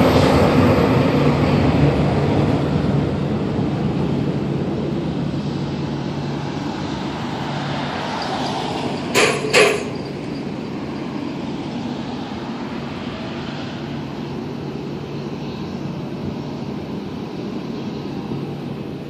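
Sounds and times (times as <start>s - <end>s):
distant jet engines taxiing: 0.0s - 19.0s.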